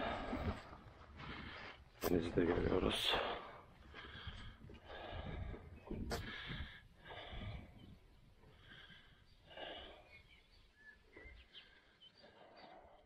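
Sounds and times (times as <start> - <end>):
person breathing hard: 0.0 - 1.8, 3.1 - 10.4, 11.4 - 13.0.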